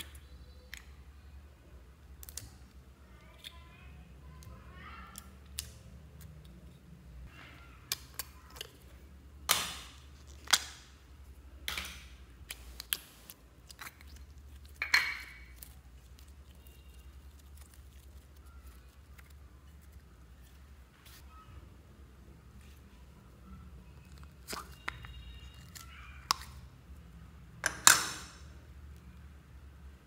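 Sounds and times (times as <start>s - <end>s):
wet slime squelches: 12.4s - 27.2s.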